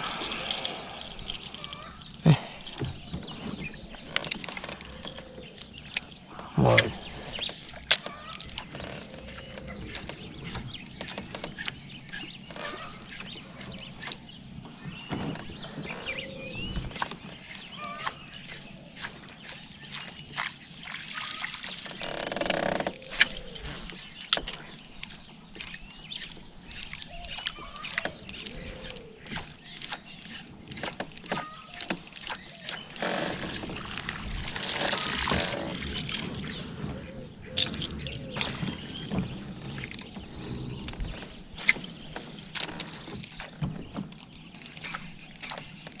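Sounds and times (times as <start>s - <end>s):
fishing tackle clicks and knocks: 0.0s - 6.4s, 37.6s - 46.0s
birds chirping: 0.0s - 46.0s.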